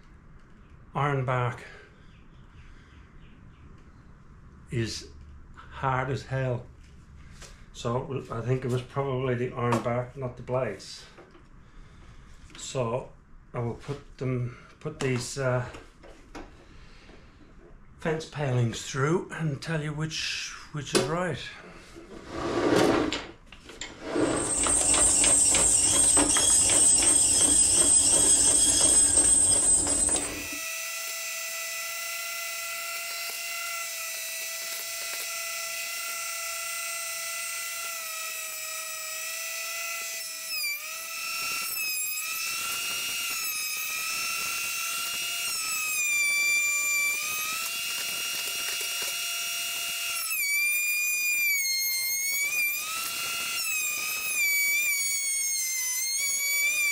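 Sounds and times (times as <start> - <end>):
thickness planer cutting wood: 23.9 - 56.9
high motor whine: 24.1 - 30.7, 35.8 - 56.9.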